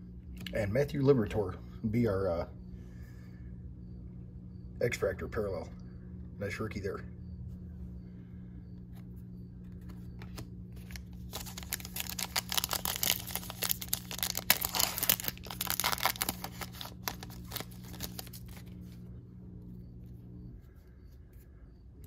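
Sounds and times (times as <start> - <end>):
wrapper tearing and crinkling: 10.8 - 18.8.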